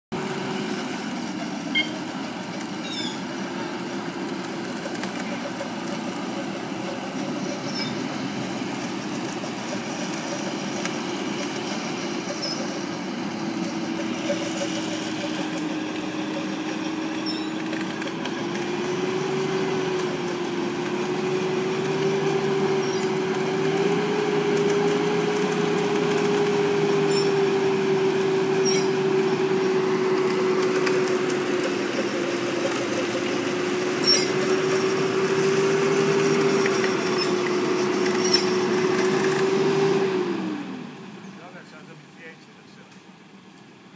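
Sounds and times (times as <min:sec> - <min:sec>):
winch motor whining: 0:00.1 - 0:41.9
vehicle engine running: 0:00.1 - 0:43.9.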